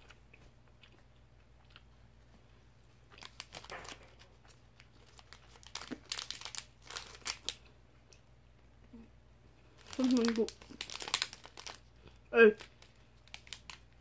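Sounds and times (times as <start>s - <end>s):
plastic packaging crinkling: 3.1s - 7.6s, 9.7s - 14.0s.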